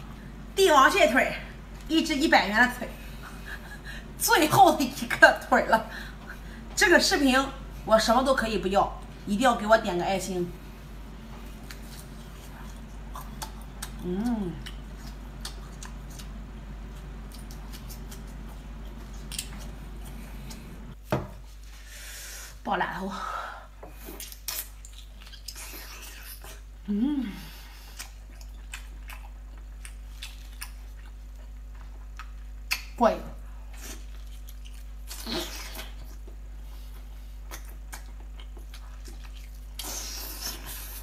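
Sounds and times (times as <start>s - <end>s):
wet eating mouth sounds: 11.5s - 16.4s
wet chewing and mouth smacks: 11.6s - 14.0s, 14.6s - 20.6s, 24.1s - 26.7s, 27.8s - 33.0s, 33.7s - 36.4s, 37.2s - 40.9s
person humming low: 14.0s - 14.7s, 26.8s - 27.7s.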